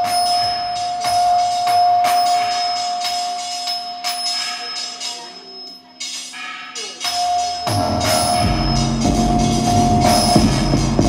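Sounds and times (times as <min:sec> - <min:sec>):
steady held electronic tone: 0:00.0 - 0:11.0.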